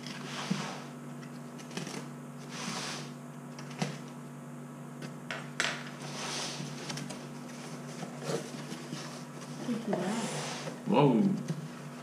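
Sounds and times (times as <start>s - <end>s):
tape and cardboard rustling: 6.0s - 10.8s.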